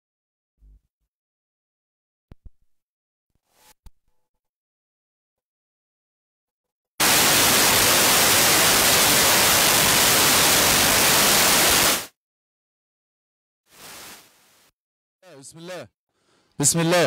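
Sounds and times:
loud static hiss: 7.0 - 12.1, 13.7 - 14.7.

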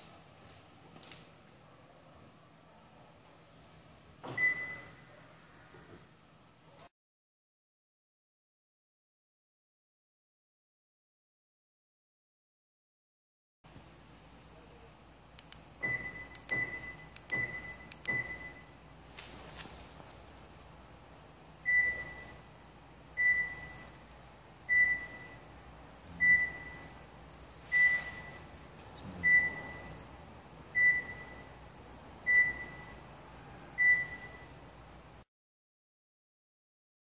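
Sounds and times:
key fob button clicks: 15.4 - 18.4
car alarm buzzer beeping: 15.8 - 18.8, 21.7 - 22.4, 23.2 - 24.0, 24.7 - 25.5, 26.2 - 27.0, 27.7 - 28.5, 29.2 - 30.0, 30.8 - 31.6, 32.2 - 33.0, 33.8 - 34.6
short beeps: 21.7 - 22.4, 23.2 - 24.0, 24.7 - 25.4, 26.2 - 27.0, 27.7 - 28.5, 29.2 - 30.0, 30.8 - 31.5, 32.3 - 33.0, 33.8 - 34.6.

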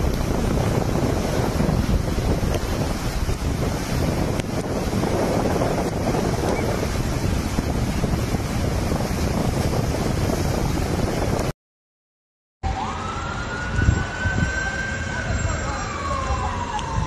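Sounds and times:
floodwater rushing: 0.0 - 11.5
wind buffeting microphone: 0.0 - 11.5, 12.8 - 17.0
siren wailing: 12.6 - 17.0.

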